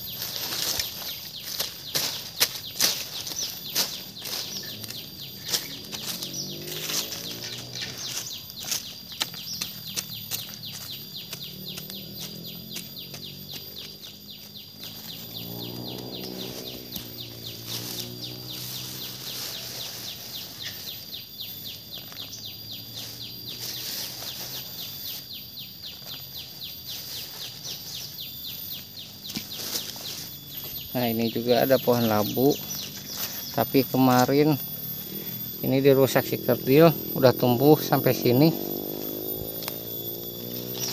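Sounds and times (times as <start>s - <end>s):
birds calling: 0.0s - 40.9s
insects chirping: 0.0s - 40.9s
low wavering tone: 0.0s - 40.9s
steady high drone: 0.0s - 40.9s.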